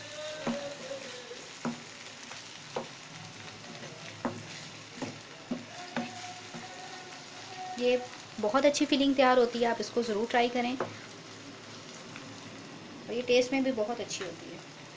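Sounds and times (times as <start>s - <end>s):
mince sizzling in a pan: 0.0s - 14.9s
spatula knocking against pan: 1.6s - 1.9s.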